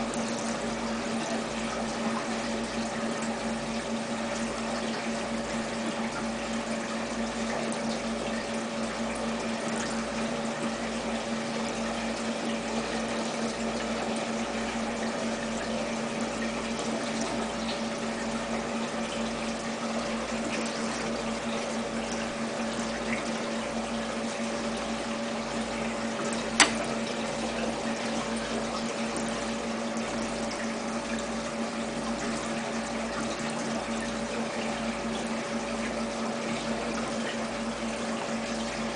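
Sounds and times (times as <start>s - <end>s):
moving water: 0.0s - 38.9s
water pump humming: 0.0s - 38.9s
sharp click: 26.6s - 26.8s.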